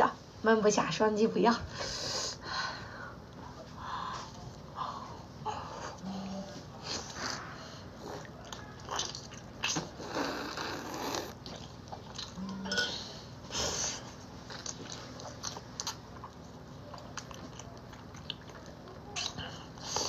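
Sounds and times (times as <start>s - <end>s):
biting and chewing food: 8.1s - 12.7s, 14.2s - 20.0s.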